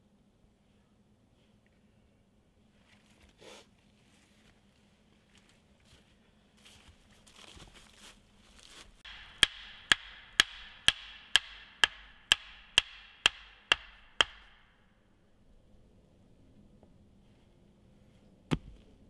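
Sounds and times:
footsteps in dry leaves: 0:05.3 - 0:09.0
hatchet striking wooden stake: 0:09.0 - 0:14.8.

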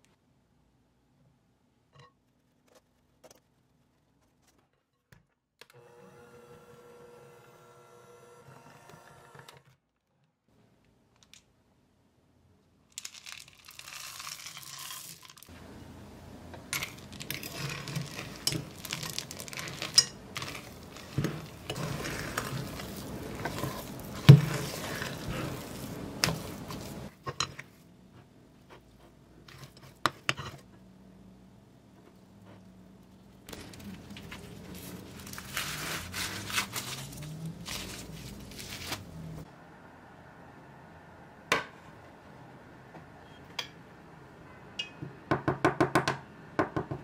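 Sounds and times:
electric hand mixer humming: 0:05.7 - 0:09.5
spoon stirring dough in glass bowl: 0:16.8 - 0:27.8.

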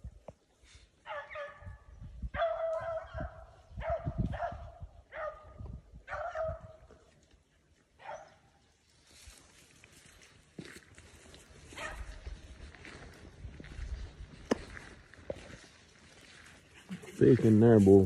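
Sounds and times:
dog barking: 0:01.0 - 0:06.8, 0:08.0 - 0:08.4, 0:11.7 - 0:12.2
rustling brush and footsteps: 0:05.6 - 0:18.0.

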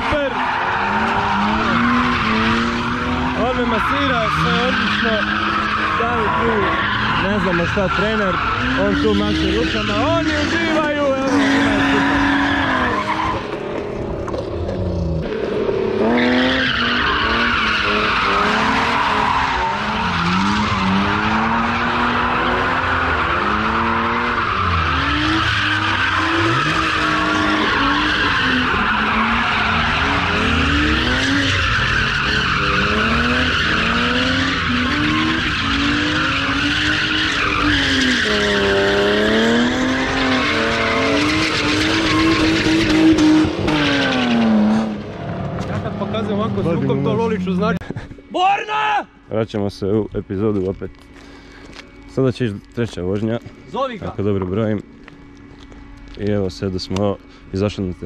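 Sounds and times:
tyres squealing on concrete: 0:00.0 - 0:13.7, 0:16.0 - 0:44.9
car engine revving: 0:00.0 - 0:47.8.

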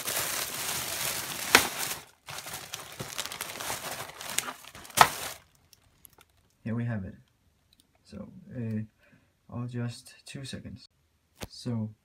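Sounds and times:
plastic wrap crinkling: 0:00.0 - 0:06.6
sharp plastic crackles: 0:00.0 - 0:06.6.

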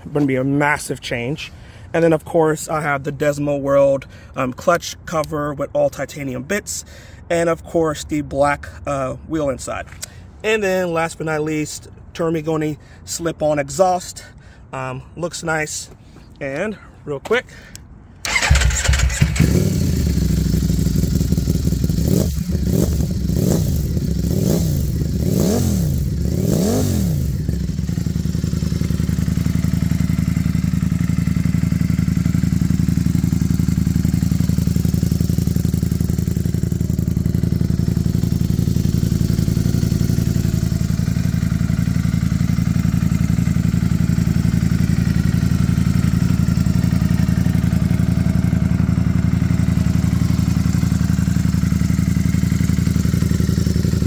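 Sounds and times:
motorcycle engine revving and idling: 0:18.2 - 0:54.0.

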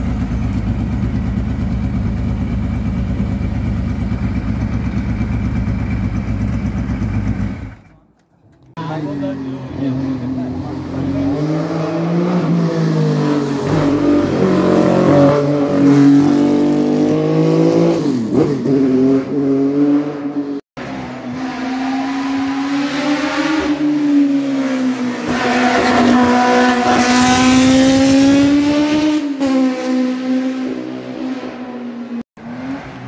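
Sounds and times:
racing car engine revving: 0:08.9 - 0:33.0.

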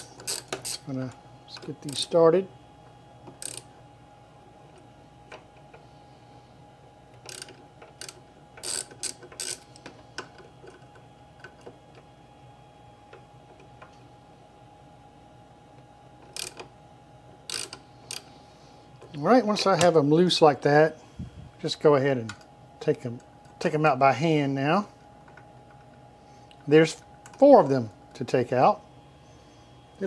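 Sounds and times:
socket ratchet clicking: 0:00.0 - 0:00.8, 0:03.3 - 0:03.7, 0:07.2 - 0:09.8, 0:16.2 - 0:16.7, 0:17.5 - 0:18.2.

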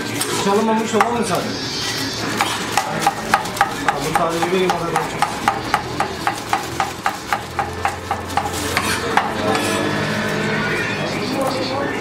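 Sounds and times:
knife chopping food: 0:02.3 - 0:09.7.

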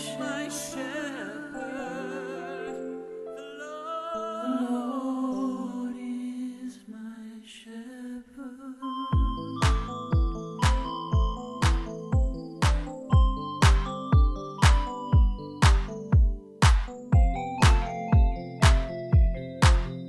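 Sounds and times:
wordless hummed vocal melody: 0:00.0 - 0:07.0
held chords: 0:09.2 - 0:20.0.

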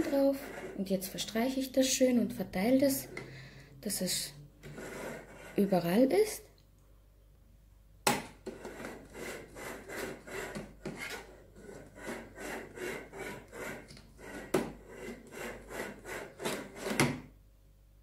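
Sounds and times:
spatula scraping in metal pan: 0:00.0 - 0:01.7, 0:02.7 - 0:03.5, 0:04.1 - 0:06.1, 0:08.5 - 0:17.0.

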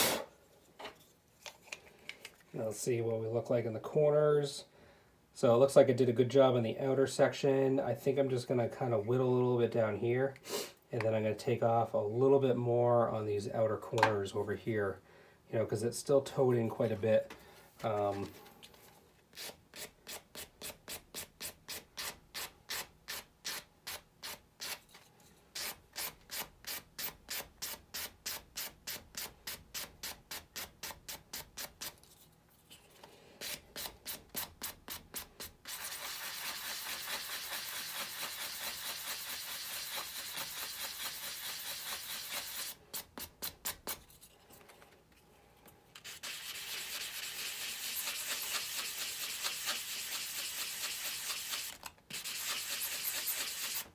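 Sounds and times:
sanding sponge rubbing plastic: 0:34.3 - 0:42.8, 0:46.0 - 0:53.9.

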